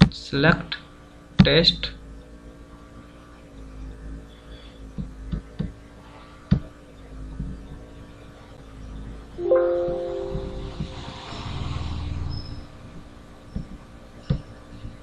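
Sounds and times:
electrical hum: 1.9 - 15.0.

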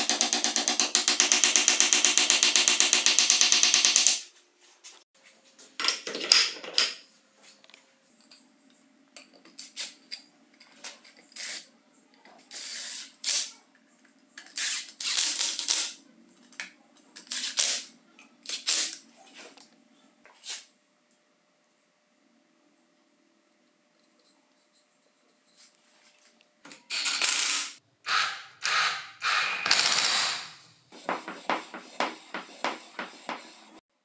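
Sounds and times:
electric screwdriver running: 27.3 - 30.4.

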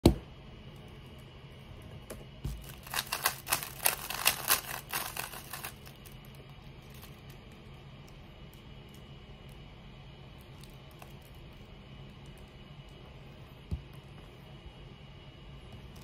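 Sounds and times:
puzzle cube clicking while turned: 2.8 - 5.8.

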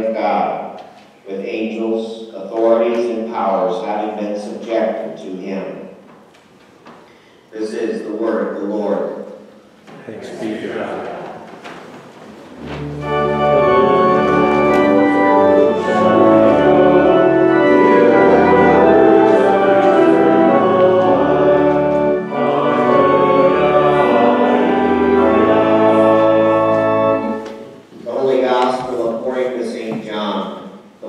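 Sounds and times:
church organ chords: 12.5 - 29.6.

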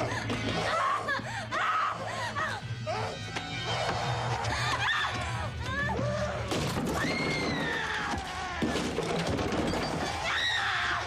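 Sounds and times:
knocks and crashes: 6.5 - 10.3.

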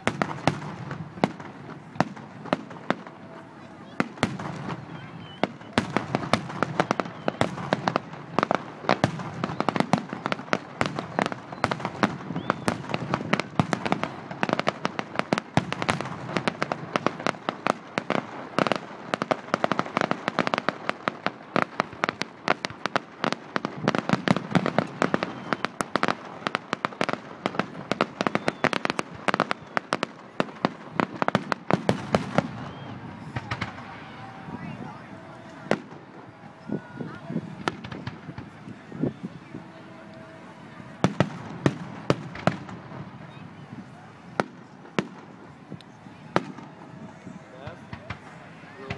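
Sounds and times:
fireworks bangs and crackles: 0.0 - 48.9.

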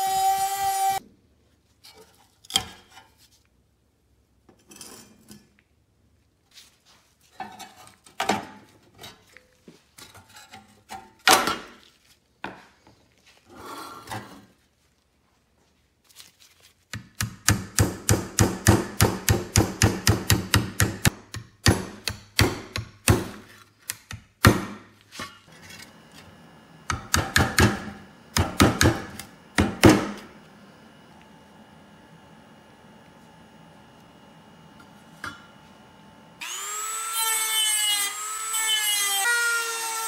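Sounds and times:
hammer striking sheet steel: 17.2 - 23.4, 26.9 - 30.2.

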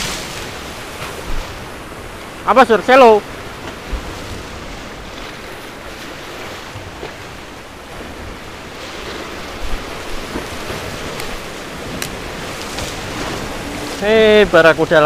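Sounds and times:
sea surf washing on shore: 0.0 - 15.0
wind buffeting microphone: 3.2 - 15.0.

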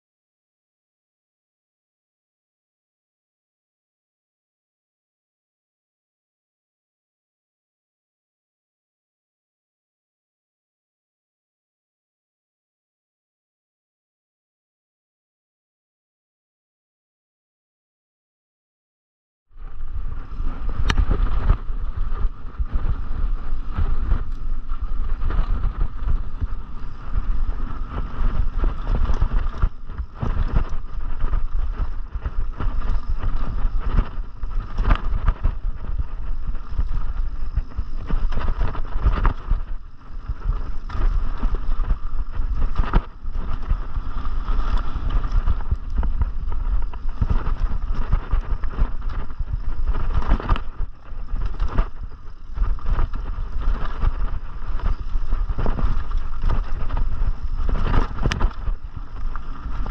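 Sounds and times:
wind buffeting microphone: 19.6 - 59.9.

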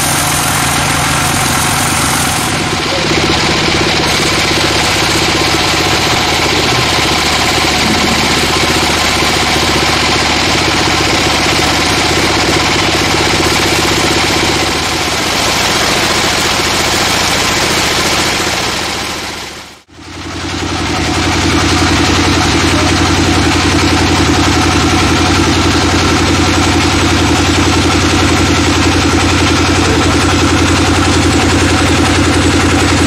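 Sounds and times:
band saw cutting log: 0.0 - 19.4.

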